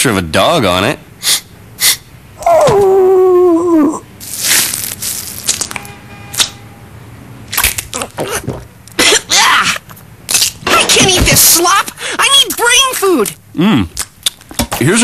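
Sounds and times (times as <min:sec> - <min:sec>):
cartoon dog whining: 0:01.2 - 0:04.1.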